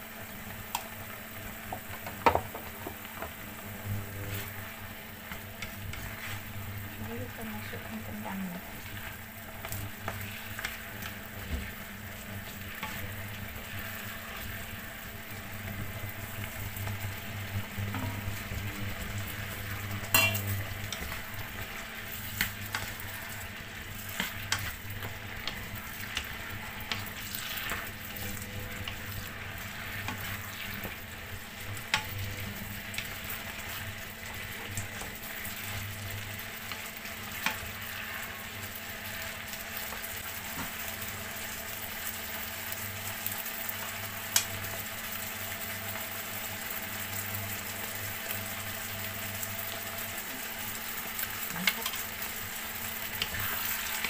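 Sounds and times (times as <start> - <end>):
potatoes frying in a pan: 0.0 - 54.0
spatula scraping and tapping pan: 9.6 - 11.8, 20.0 - 31.0.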